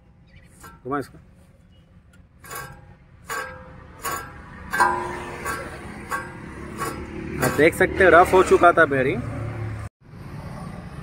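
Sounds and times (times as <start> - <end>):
bearing metallic ticks: 0.3 - 7.8.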